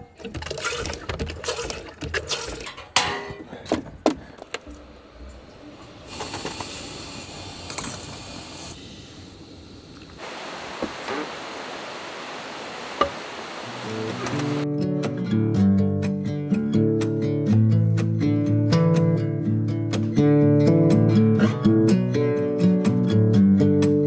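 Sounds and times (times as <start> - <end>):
steady hiss: 4.8 - 14.6.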